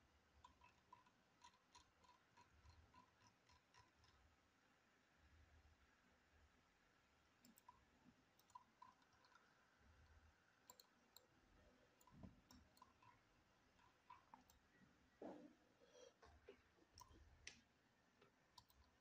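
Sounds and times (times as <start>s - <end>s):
computer mouse clicks: 0.4s - 4.2s, 7.4s - 7.8s, 8.4s - 9.5s, 10.6s - 11.3s, 12.0s - 13.2s, 13.8s - 14.7s, 17.0s - 19.0s.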